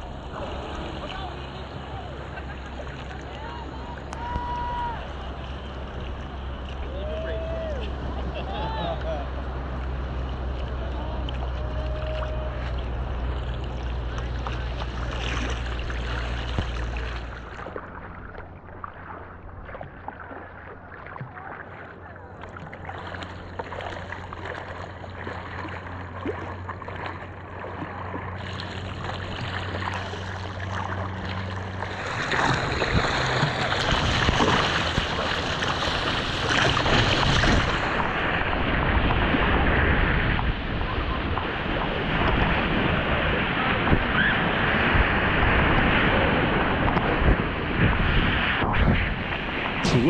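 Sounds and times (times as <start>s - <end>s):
ocean surf and rushing water: 0.0s - 50.0s
wind buffeting microphone: 28.3s - 50.0s.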